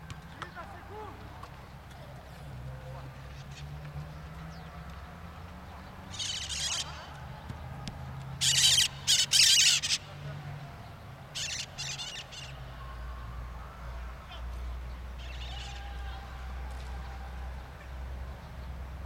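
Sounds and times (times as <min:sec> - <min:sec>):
birds squawking: 0:06.1 - 0:07.1, 0:08.4 - 0:10.2, 0:11.4 - 0:12.7, 0:15.2 - 0:16.0.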